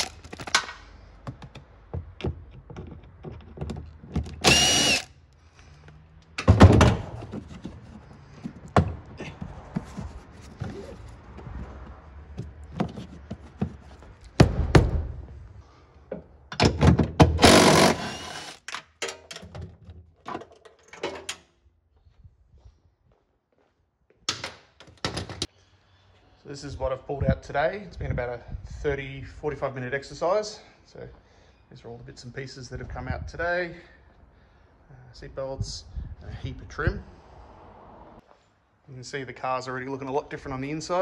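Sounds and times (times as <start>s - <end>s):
cordless drill whine: 4.4s - 5.1s, 17.4s - 18.6s.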